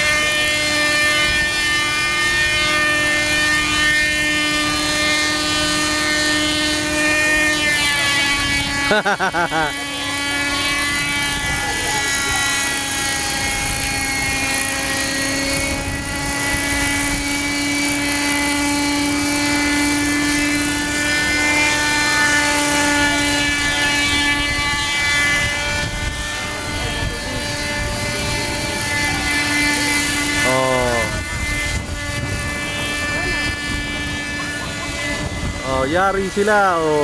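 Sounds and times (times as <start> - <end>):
model helicopter engine whine: 0.0 - 37.0.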